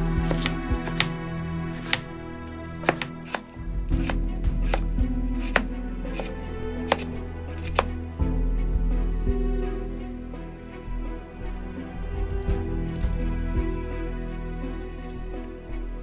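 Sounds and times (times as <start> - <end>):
knife chopping on wooden board: 0.0 - 2.1, 2.7 - 8.0
background music: 0.0 - 16.0.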